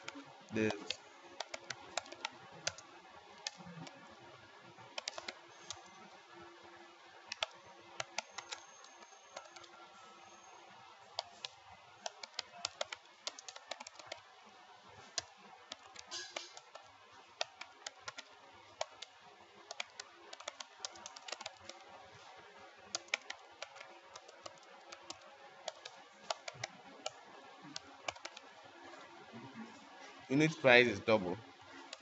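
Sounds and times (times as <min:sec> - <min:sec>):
computer keyboard typing: 0:00.0 - 0:04.0, 0:04.9 - 0:05.9, 0:07.3 - 0:09.9, 0:11.1 - 0:14.3, 0:15.0 - 0:21.8, 0:22.9 - 0:28.5.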